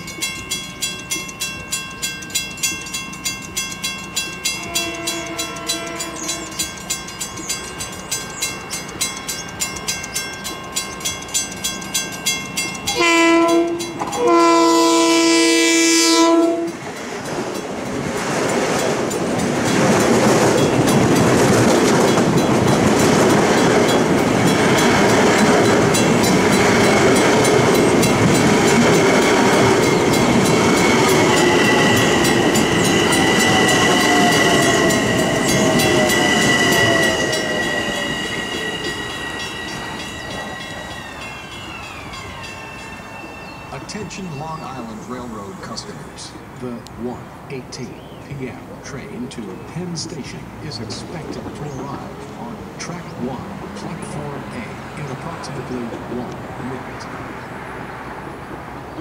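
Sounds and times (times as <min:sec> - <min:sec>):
crossing warning bells ringing: 0:00.0 - 0:59.0
train passing rush of wheels: 0:00.0 - 0:59.0
train horn blasts: 0:04.6 - 0:06.6, 0:12.9 - 0:16.9, 0:31.0 - 0:41.4
high whine: 0:22.1 - 0:46.1.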